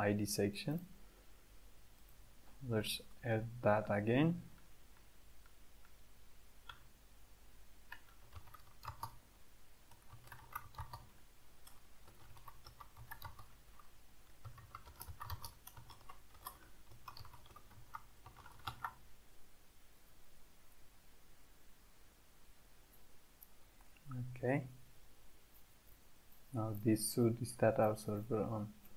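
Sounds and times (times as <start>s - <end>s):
faint keyboard typing: 7.8s - 9.2s, 9.8s - 19.0s.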